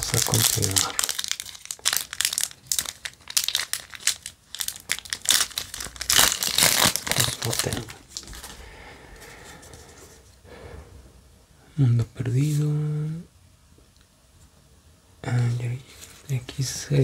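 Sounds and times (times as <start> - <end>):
foil wrapper crinkling and tearing: 0.0 - 8.6.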